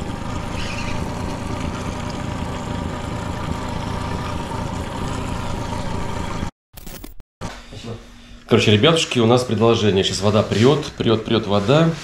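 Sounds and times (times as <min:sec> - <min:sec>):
outboard motor running: 0:00.0 - 0:06.5.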